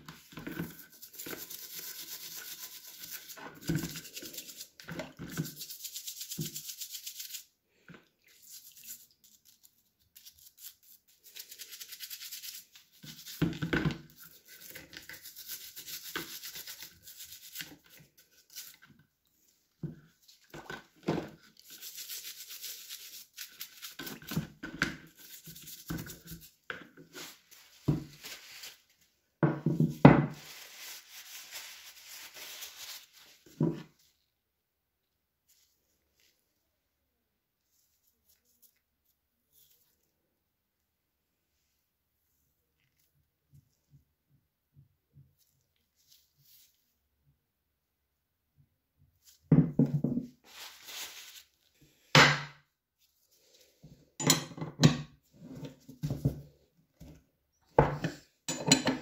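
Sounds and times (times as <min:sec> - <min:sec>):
toothbrush scrubbing metal: 0:00.4 - 0:07.5, 0:08.3 - 0:13.5, 0:14.1 - 0:18.9, 0:21.5 - 0:24.4, 0:25.1 - 0:27.4.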